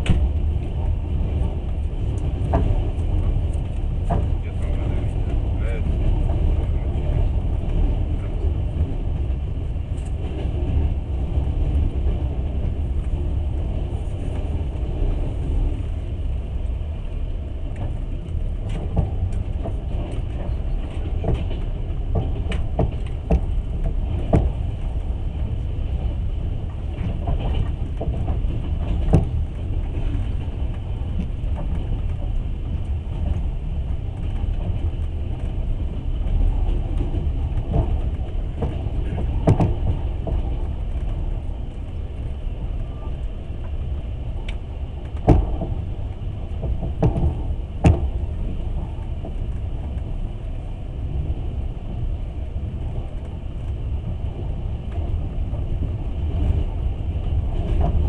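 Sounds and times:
train wheels rumbling on rail: 0.0 - 58.0
sharp clicks and knocks: 2.2 - 6.7, 17.7 - 25.0, 36.2 - 41.4, 44.4 - 50.1.

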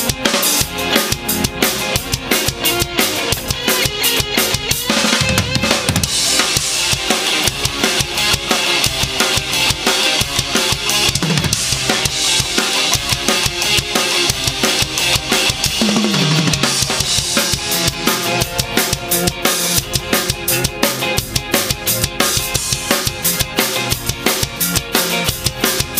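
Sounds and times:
drum kit groove: 0.0 - 25.9
ska backing track: 0.0 - 25.9.

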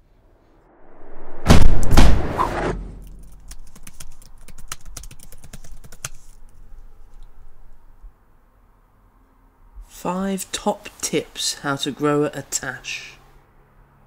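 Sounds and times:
loud rushing noise burst: 0.2 - 3.0
laptop keys clicking: 3.0 - 6.5.

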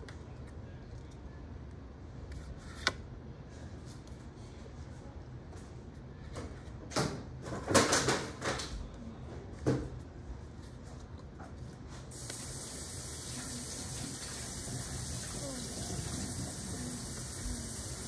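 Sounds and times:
steady hiss: 12.1 - 18.0.

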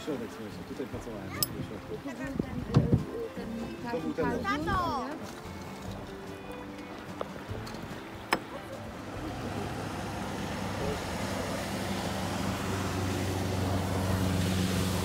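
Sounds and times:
motorboat engine humming: 0.0 - 15.0
water noise: 0.0 - 15.0
wind noise: 1.4 - 3.2.

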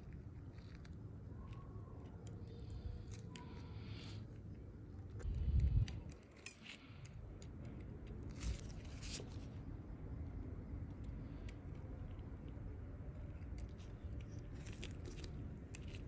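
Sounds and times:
metal tool clicking and scraping: 5.2 - 8.6.

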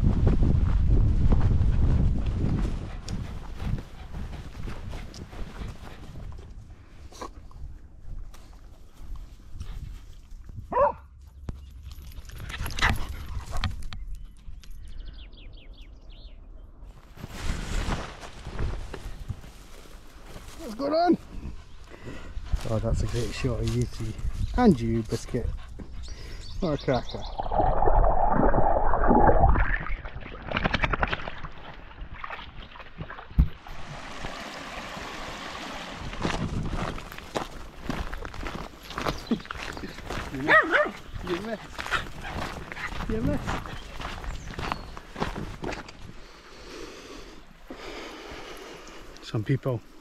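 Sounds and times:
wind rumble on microphone: 0.0 - 10.8, 21.3 - 31.0, 36.0 - 46.2
dog yelping bark: 10.7 - 11.1, 40.5 - 41.0
bird chirping: 13.9 - 16.8, 23.8 - 27.8, 38.9 - 40.4, 43.1 - 45.3
dogs scuffling on path: 17.1 - 21.6, 22.4 - 25.9, 36.2 - 46.2
muffled underwater rush: 26.8 - 32.2
dogs splashing through stream: 26.8 - 44.3.

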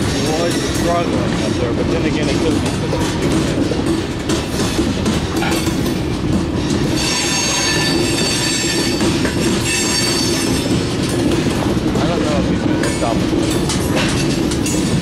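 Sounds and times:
train wheels clacking over rail joints: 0.0 - 15.0
high-pitched wheel flange squeal: 7.0 - 9.0, 9.6 - 10.6.

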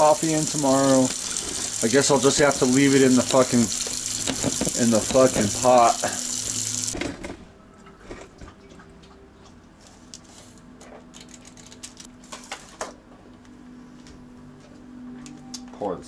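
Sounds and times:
tap water running into sink: 0.0 - 7.0.

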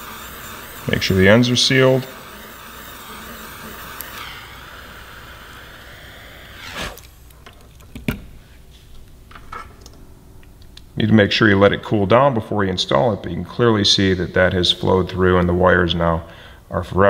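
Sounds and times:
torch flame hissing: 0.0 - 7.3.

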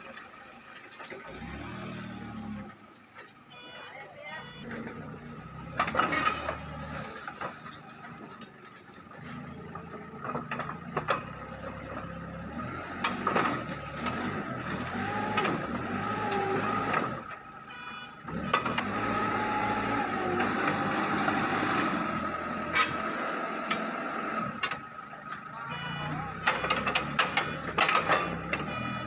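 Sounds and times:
diesel engine whining: 0.0 - 29.0
metallic clanks of track links: 26.4 - 28.7.

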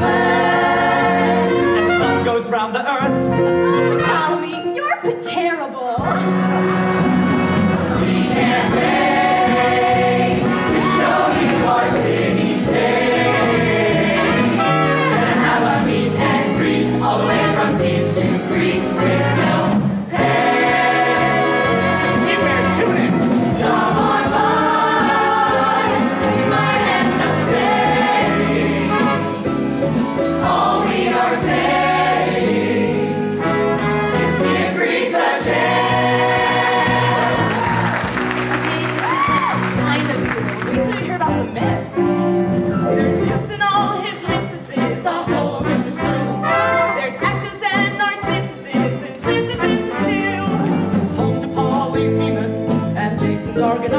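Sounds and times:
cast singing together: 0.0 - 2.0, 8.0 - 29.3, 30.4 - 33.4, 34.1 - 37.6.

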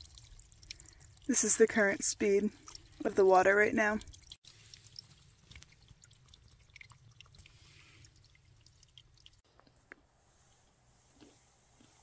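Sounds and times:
water dripping and trickling: 0.0 - 9.4.

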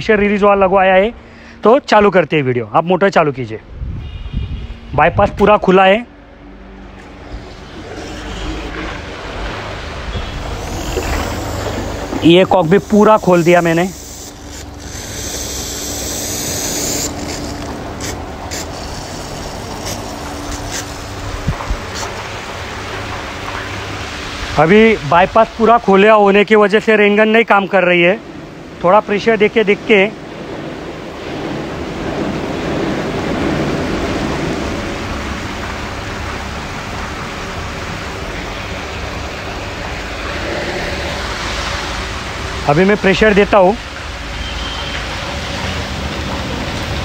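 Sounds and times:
steady hum: 3.6 - 24.2
water hissing from sprinkler: 7.4 - 26.5, 31.2 - 47.0.

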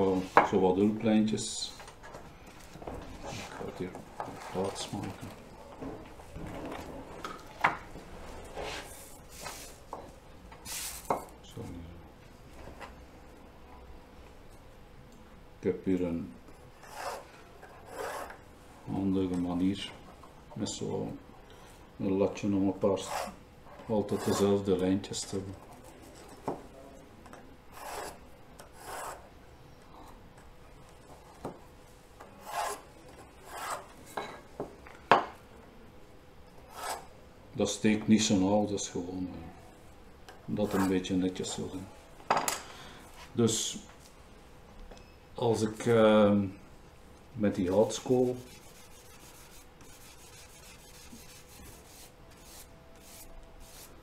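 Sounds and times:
pencil scratching on paper: 16.8 - 18.3, 24.1 - 24.6, 27.7 - 28.2, 28.8 - 29.2, 32.4 - 32.8, 33.4 - 33.8, 47.8 - 53.9.

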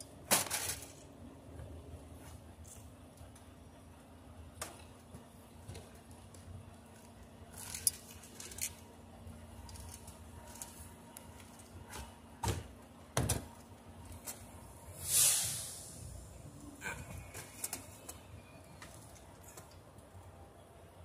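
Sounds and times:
brief hissing rush: 15.0 - 16.2.

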